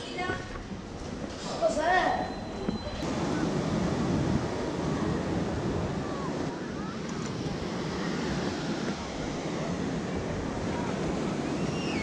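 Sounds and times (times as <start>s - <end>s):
wind buffeting microphone: 2.6s - 12.0s
surf breaking on beach: 3.0s - 12.0s.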